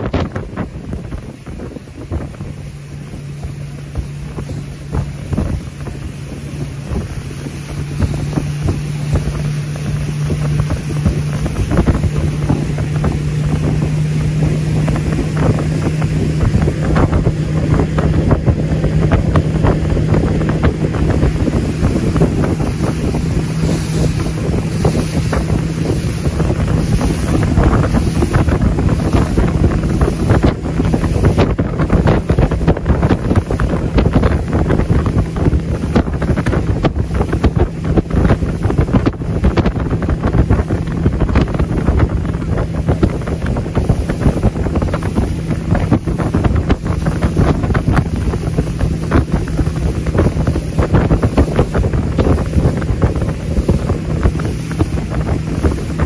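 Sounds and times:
boat motor humming: 0:00.0 - 0:56.0
rushing water: 0:00.0 - 0:56.0
wind buffeting microphone: 0:00.0 - 0:56.0.

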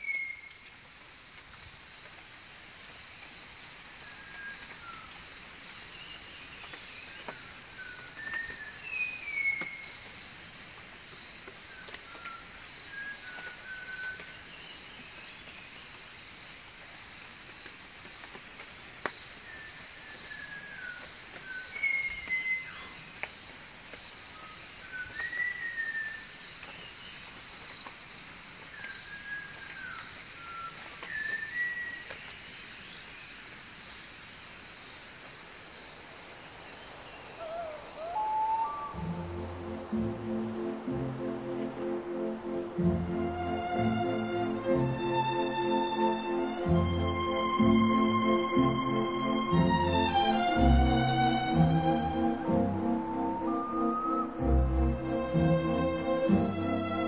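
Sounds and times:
thrush singing gliding whistles: 0:00.0 - 0:00.6, 0:04.0 - 0:05.4, 0:06.1 - 0:10.1, 0:11.6 - 0:15.3, 0:19.4 - 0:23.0, 0:24.3 - 0:26.4, 0:28.7 - 0:32.2, 0:36.6 - 0:41.0, 0:51.9 - 0:55.2
insect chirping: 0:00.0 - 0:41.0.

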